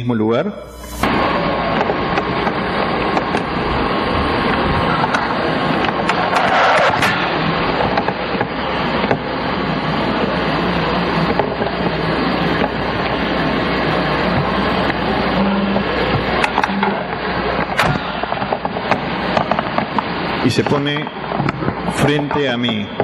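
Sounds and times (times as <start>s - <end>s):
outdoor night background noise: 0.7s - 23.0s.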